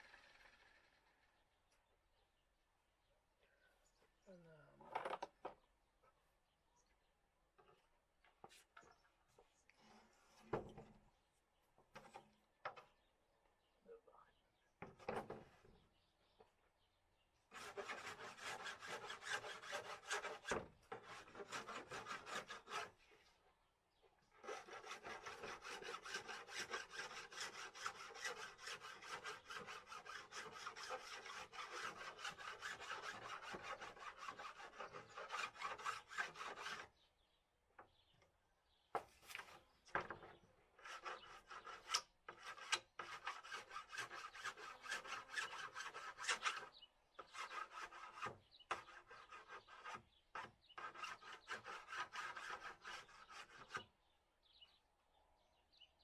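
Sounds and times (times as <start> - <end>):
filing strokes on metal panel: 17.5 - 23.0, 24.4 - 37.0, 40.8 - 53.9.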